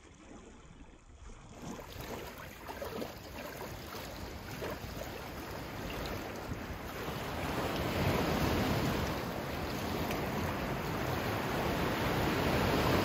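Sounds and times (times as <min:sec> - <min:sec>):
ocean water lapping and splashing: 0:00.0 - 0:13.0.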